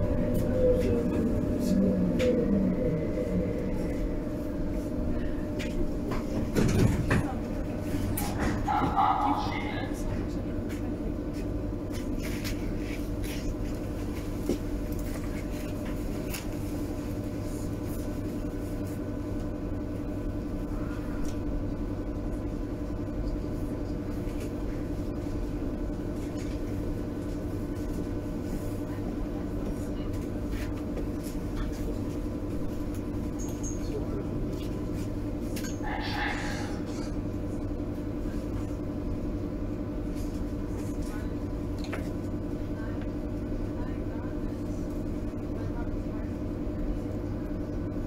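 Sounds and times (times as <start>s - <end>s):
electric hum: 0.0s - 13.8s
train rumble: 0.0s - 48.0s.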